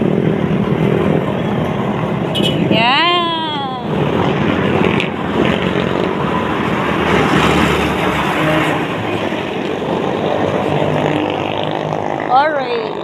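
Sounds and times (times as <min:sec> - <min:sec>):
road traffic passing: 0:00.0 - 0:13.0.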